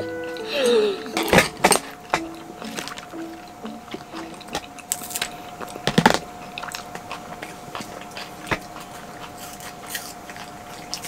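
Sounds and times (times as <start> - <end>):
faint steady hum: 0.0 - 11.0
chewing with crisp crunches: 3.8 - 11.0.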